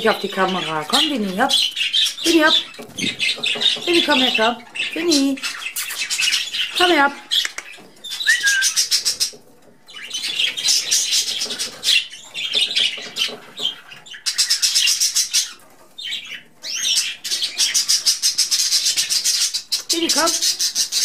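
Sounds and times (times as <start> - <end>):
budgerigars chattering: 0.0 - 21.0
bird whistle: 8.1 - 9.0.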